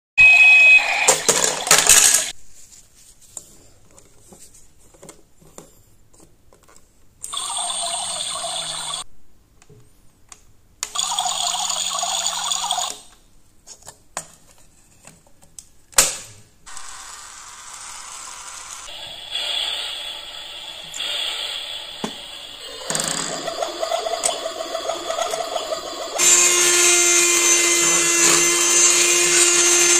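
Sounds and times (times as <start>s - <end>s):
toy blender whirring: 1.1s - 2.3s, 7.2s - 9.0s, 10.9s - 13.0s, 16.7s - 29.9s
toy coffee maker pump: 7.2s - 9.0s, 10.9s - 13.0s, 22.0s - 29.9s.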